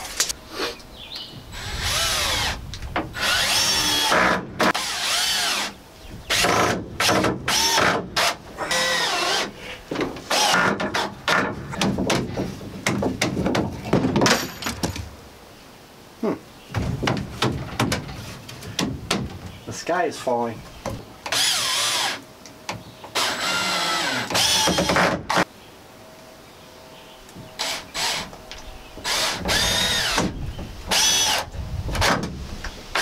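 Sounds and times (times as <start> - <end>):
cordless drill driving screws: 21.3 - 22.2, 23.2 - 25.4, 29.0 - 30.3, 30.9 - 32.1.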